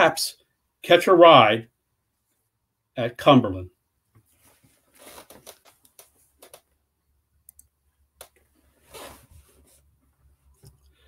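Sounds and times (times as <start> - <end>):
short rustle: 4.3 - 6.6, 8.6 - 10.0
faint clicks: 7.4 - 8.4.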